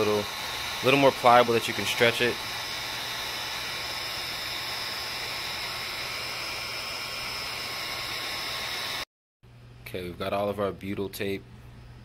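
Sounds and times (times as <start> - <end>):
heat gun blowing air: 0.0 - 9.1
heat gun whine: 0.0 - 9.1.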